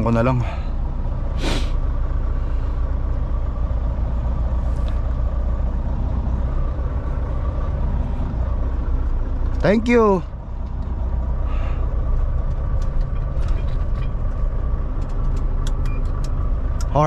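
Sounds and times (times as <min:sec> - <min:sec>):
truck engine running: 0:00.0 - 0:17.0
air hiss burst: 0:01.4 - 0:01.8.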